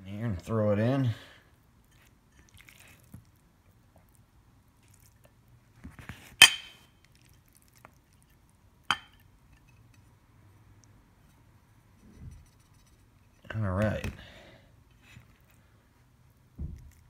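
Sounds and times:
ceramic dishes clinking: 0:06.4 - 0:06.8, 0:08.9 - 0:10.1.

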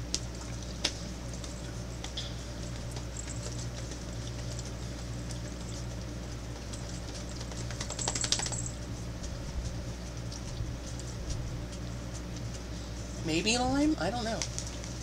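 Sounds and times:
low room hum: 0:00.0 - 0:15.0
rapid crinkly clicks: 0:00.8 - 0:09.4.

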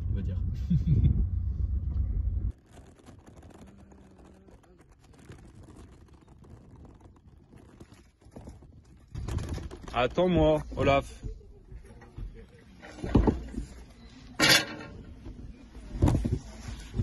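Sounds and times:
road rumble inside car: 0:00.0 - 0:05.0
faint outdoor ambience: 0:09.8 - 0:17.0.

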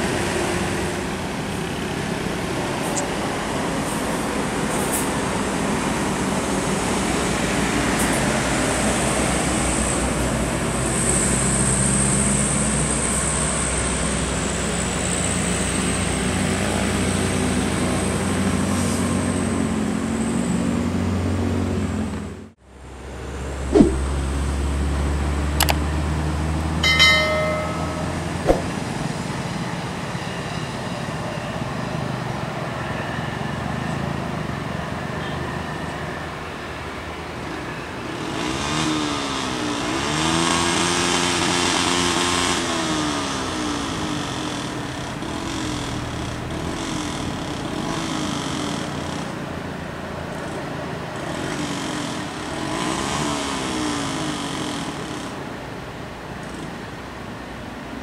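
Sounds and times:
bus diesel engine: 0:00.0 - 0:58.0
sharp knocks: 0:23.8 - 0:24.0, 0:26.8 - 0:28.9.

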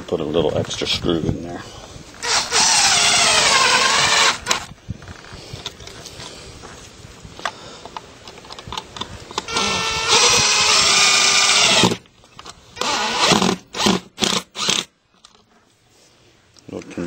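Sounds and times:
power drill driving screw: 0:02.2 - 0:04.7, 0:09.4 - 0:12.0, 0:12.8 - 0:14.9.

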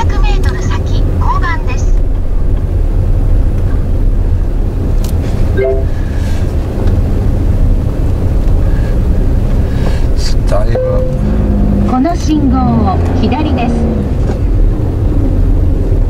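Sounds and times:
car engine and road rumble: 0:00.0 - 0:16.0
short tone: 0:05.6 - 0:06.1.

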